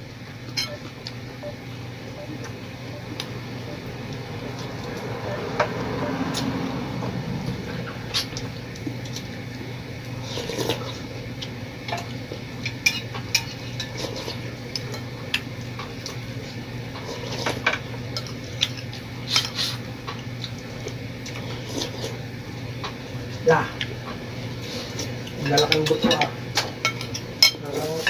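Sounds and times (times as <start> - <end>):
steady low hum: 0.0 - 13.7
spoons clinking against plates: 25.4 - 28.0.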